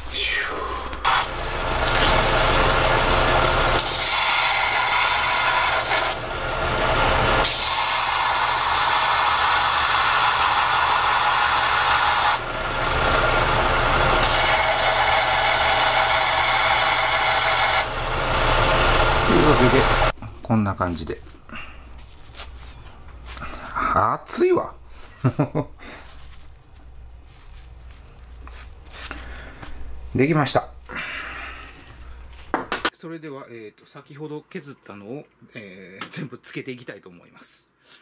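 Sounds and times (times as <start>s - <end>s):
belt sander motor hum: 1.0s - 20.1s
metal grinding on sanding belt: 1.1s - 20.1s.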